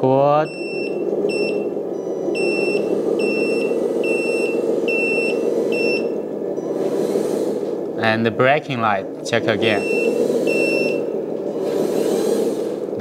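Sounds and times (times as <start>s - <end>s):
simulated truck engine: 0.0s - 13.0s
reversing beeper: 0.4s - 6.9s, 9.0s - 11.3s.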